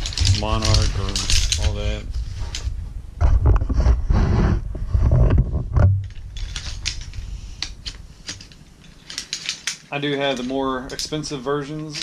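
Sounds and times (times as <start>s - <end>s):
nylon bag rustling: 0.0s - 2.8s
chair poles clicking together: 6.0s - 12.0s.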